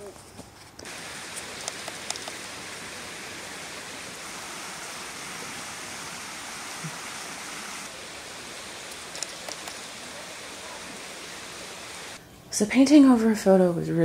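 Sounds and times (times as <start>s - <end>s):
stream flowing: 0.8s - 12.2s
faint clicks: 1.6s - 2.5s, 8.9s - 9.8s.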